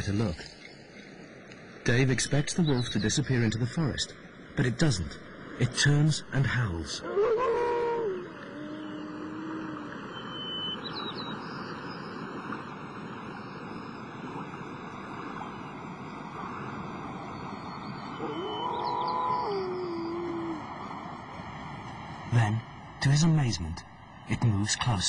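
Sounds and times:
wolf howling: 7.0s - 10.2s, 18.2s - 20.8s.

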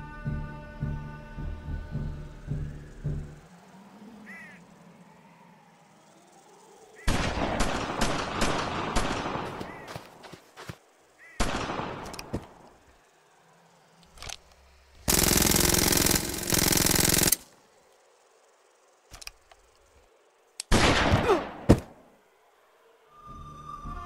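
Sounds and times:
automatic gunfire burst: 15.1s - 17.4s
loud gunshot: 20.7s - 21.9s.

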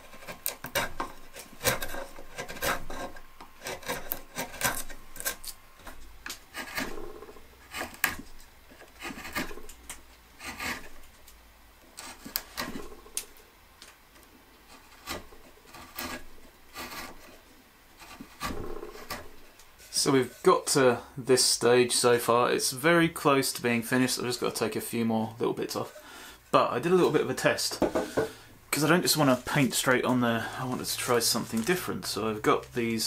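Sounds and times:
chisel scraping wood: 0.0s - 11.2s, 11.9s - 13.4s, 14.6s - 20.6s, 25.7s - 26.2s.

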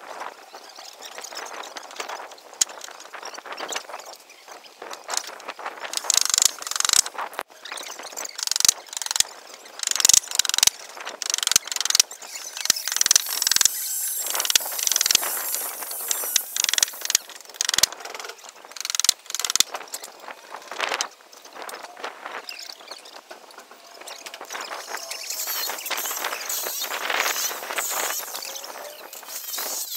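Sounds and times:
hissing noise: 11.9s - 17.8s, 24.0s - 29.9s.

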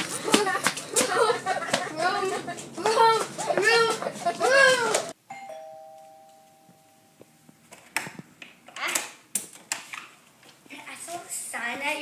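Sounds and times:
two-tone doorbell chime: 5.3s - 7.4s.

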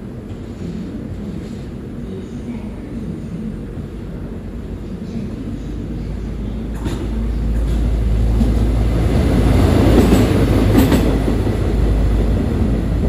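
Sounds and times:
rail vehicle rumbling past: 3.4s - 13.0s.

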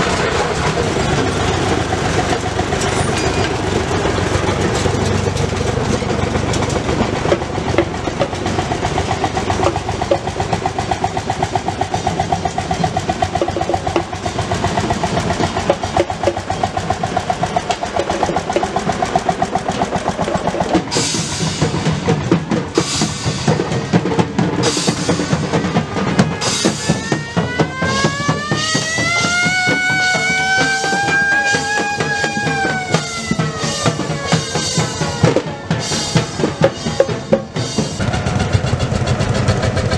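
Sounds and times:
music with drum kit beat: 13.2s - 39.9s.

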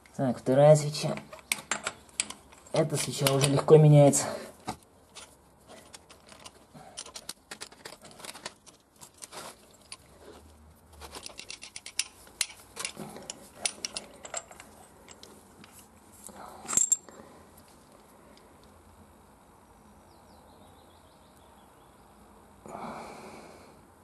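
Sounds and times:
metal socket clicking and clinking: 11.3s - 15.3s.

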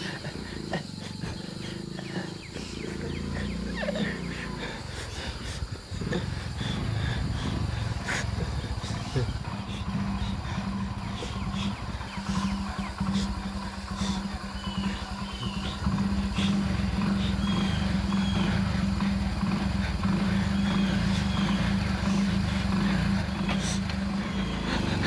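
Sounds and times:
motorcycle engine idling: 0.0s - 25.0s
high bird chirps: 8.8s - 24.9s.

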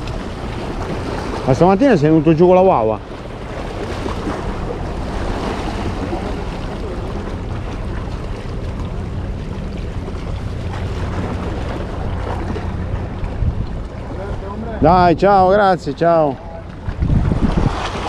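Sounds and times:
wind buffeting microphone: 9.9s - 18.0s
sea washing against rocks: 16.7s - 18.0s.

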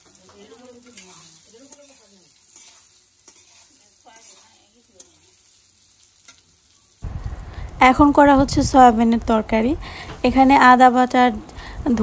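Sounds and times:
food sizzling in a wok: 0.0s - 12.0s
metal spatula scraping a wok: 0.2s - 6.5s.

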